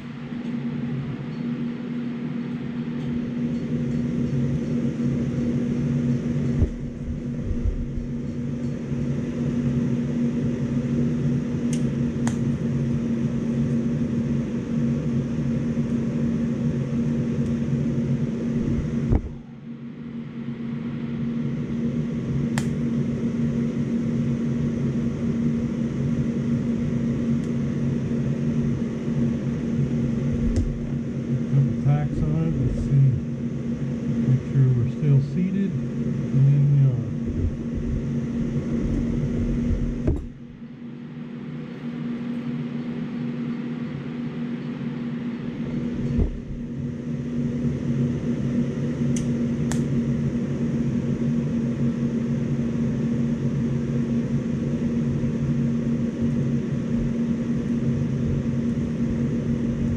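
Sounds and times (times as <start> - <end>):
welding machine humming: 0.0 - 19.8.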